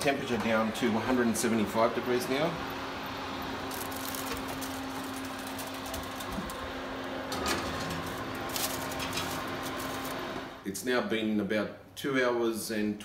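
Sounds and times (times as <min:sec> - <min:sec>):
steady low hum: 0:00.0 - 0:10.7
metal pan scraping on oven rack: 0:07.2 - 0:10.4.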